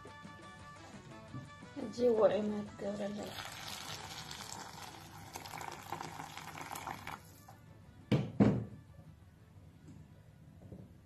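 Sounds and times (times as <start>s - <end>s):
water splashing into hot oil: 3.2s - 7.5s.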